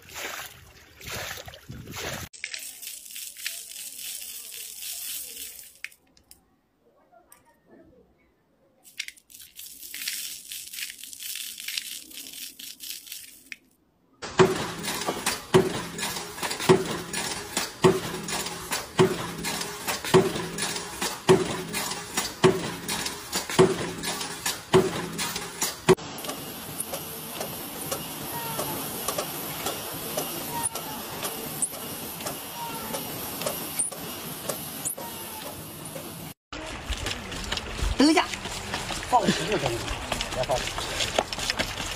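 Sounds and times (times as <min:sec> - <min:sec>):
glass beads rustling in bowl: 0:02.4 - 0:06.0, 0:08.9 - 0:13.7
punch press striking: 0:14.2 - 0:26.0
machine running: 0:14.2 - 0:41.9.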